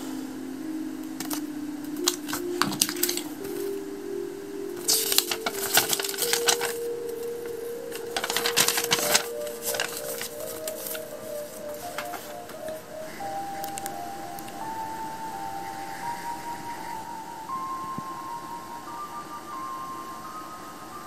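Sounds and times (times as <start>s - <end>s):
background music melody: 0.0s - 21.0s
paper leaflet crackling: 1.2s - 3.8s, 4.8s - 14.6s.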